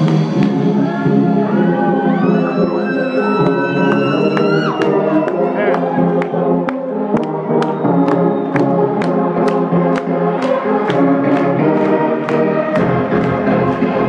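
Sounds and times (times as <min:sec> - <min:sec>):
deep bass: 0:00.0 - 0:06.4, 0:11.0 - 0:14.0
electronic dance music: 0:00.0 - 0:14.0.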